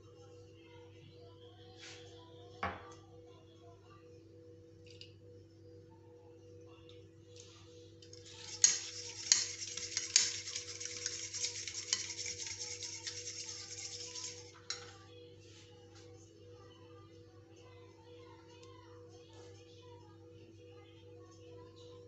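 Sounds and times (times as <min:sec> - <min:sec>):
fork whisking eggs in a bowl: 0:08.0 - 0:15.0.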